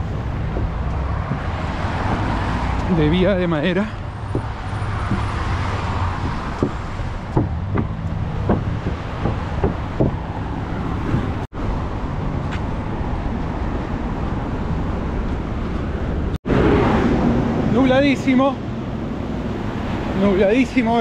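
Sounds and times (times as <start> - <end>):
footsteps on wooden boards: 0.0 - 3.0, 3.7 - 11.4
road traffic rumble: 0.0 - 21.0.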